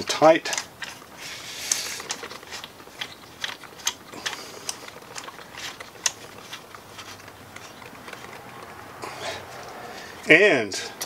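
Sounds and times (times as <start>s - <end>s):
short scraping rub: 0.9s - 3.2s.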